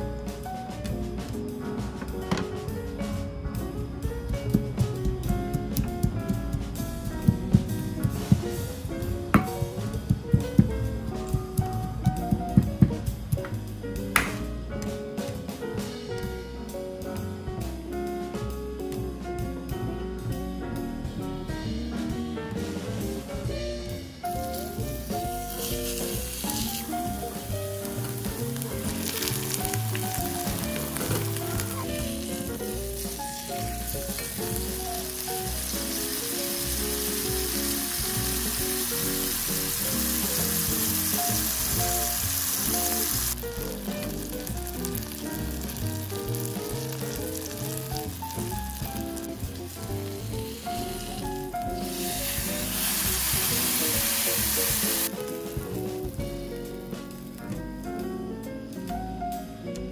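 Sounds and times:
light background music: 0.0s - 59.9s
fish sizzling in a frying pan: 24.2s - 56.2s.

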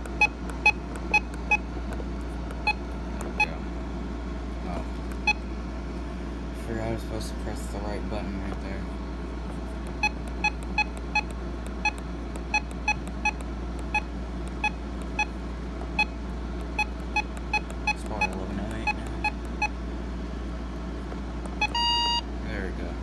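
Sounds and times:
radio key-press beeps: 0.0s - 1.7s, 10.0s - 15.3s, 15.9s - 19.8s, 21.5s - 22.3s.

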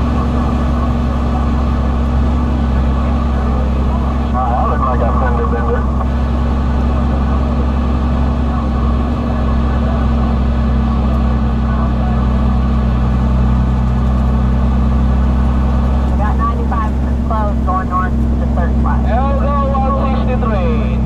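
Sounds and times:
diesel engine drone: 0.0s - 21.0s
road noise: 0.0s - 21.0s.

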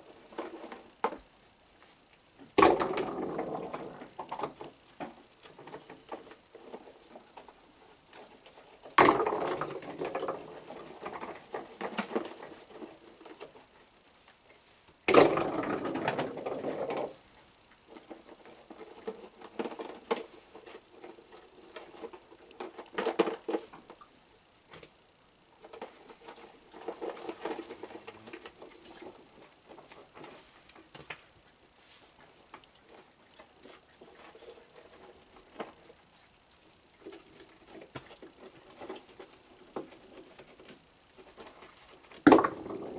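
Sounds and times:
rattling and rustling: 0.0s - 14.0s, 15.1s - 24.0s, 24.7s - 42.9s
soft clicks and rustles: 0.0s - 42.9s.

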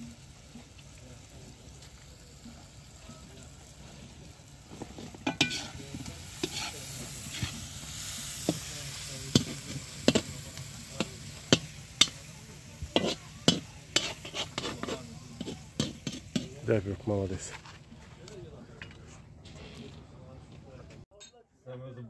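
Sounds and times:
faint hiss: 0.0s - 17.3s
utensils clinking on cookware: 4.7s - 7.6s, 8.4s - 16.7s.

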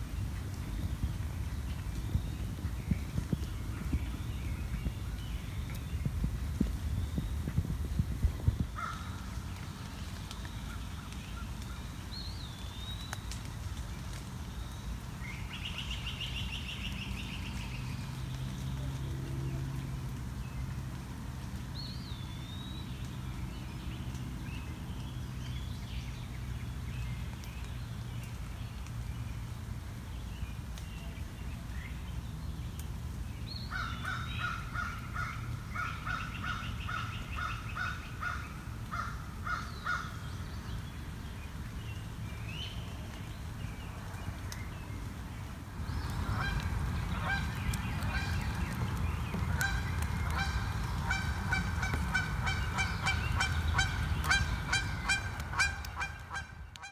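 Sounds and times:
woodland birds calling: 30.1s - 56.9s
loud repeated bird calls: 46.0s - 56.9s.

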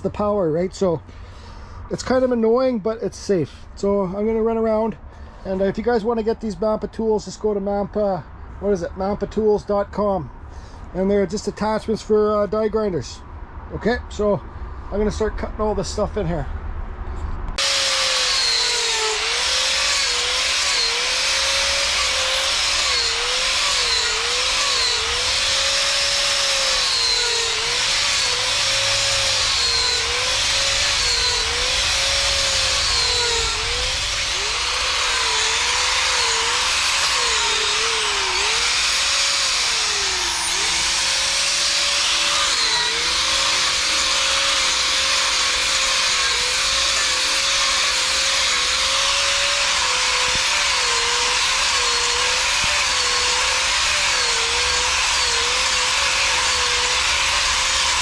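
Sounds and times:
wood being cut: 17.5s - 58.0s
die grinder motor whine: 17.6s - 58.0s.

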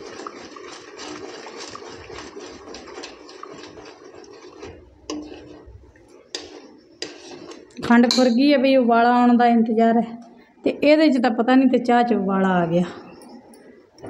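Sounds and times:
metal spoon scraping a pan: 0.0s - 8.5s
sharp spoon tap: 8.0s - 8.4s.

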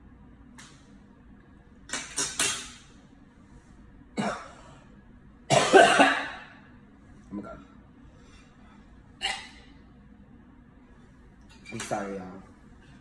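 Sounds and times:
man coughing and gagging: 4.2s - 4.7s, 5.5s - 6.6s, 9.2s - 9.6s.

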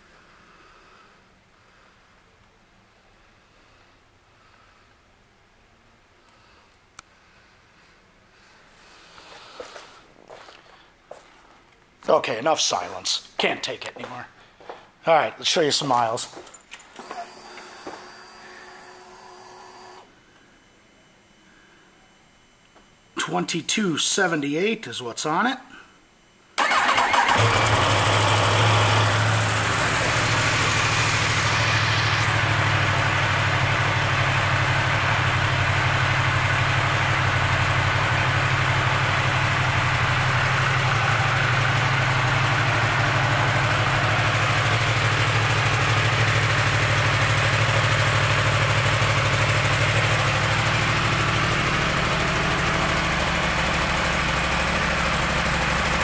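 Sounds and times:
motorcycle engine starting and idling: 26.6s - 56.0s.

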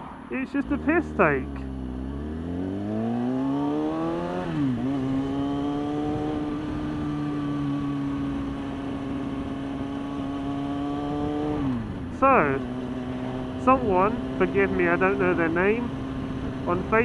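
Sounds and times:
motorcycle engine revving: 0.0s - 17.0s.

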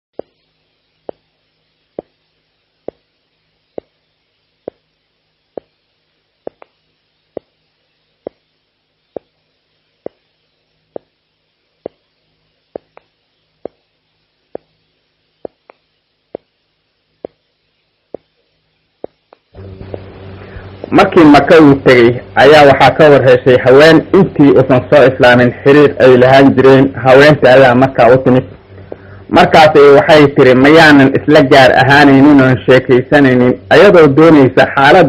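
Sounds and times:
faint low hum: 0.2s - 35.0s
sharp clicks: 6.4s - 7.5s.

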